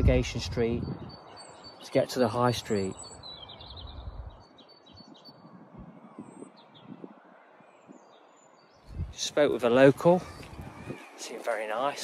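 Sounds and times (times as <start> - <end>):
low rumble of wind: 0.0 - 12.0
small bird chirping: 0.8 - 9.1.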